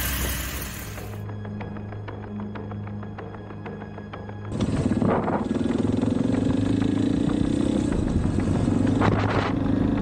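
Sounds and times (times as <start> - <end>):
motorcycle engines running: 0.0 - 1.2, 4.4 - 10.0.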